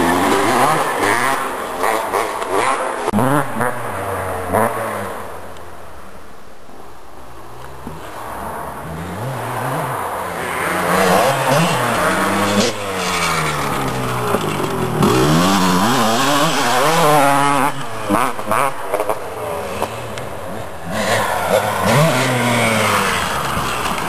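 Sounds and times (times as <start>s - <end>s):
motocross bikes revving: 0.0s - 5.4s, 7.9s - 24.0s.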